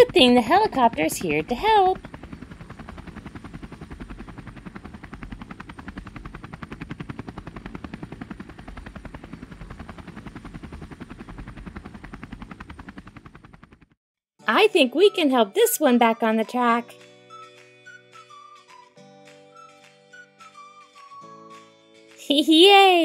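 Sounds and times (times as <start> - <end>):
helicopter rotor chopping: 0.0 - 14.0.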